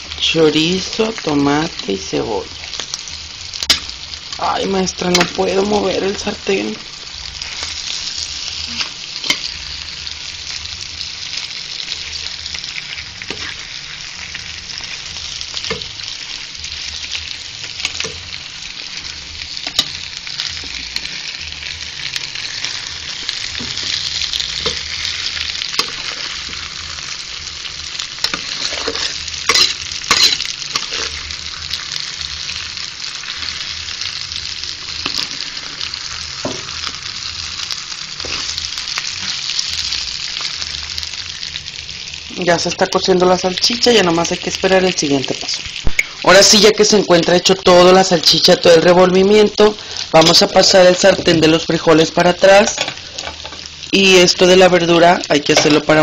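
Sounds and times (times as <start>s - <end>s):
food sizzling in a frying pan: 0.0s - 56.0s
metal spoon scraping a pan: 7.4s - 9.6s, 12.9s - 14.9s, 22.2s - 27.2s, 28.0s - 31.5s, 38.2s - 39.5s.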